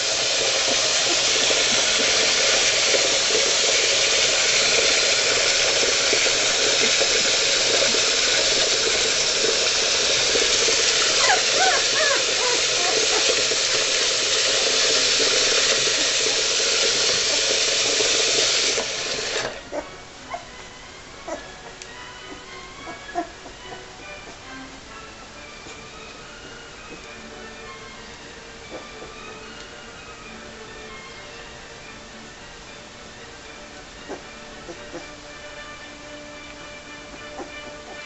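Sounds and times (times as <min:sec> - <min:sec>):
tap water running: 0:00.0 - 0:19.9
puppy whimpering: 0:11.1 - 0:13.5, 0:19.6 - 0:20.6, 0:21.2 - 0:24.5, 0:28.7 - 0:29.2, 0:34.1 - 0:35.2, 0:37.2 - 0:38.0.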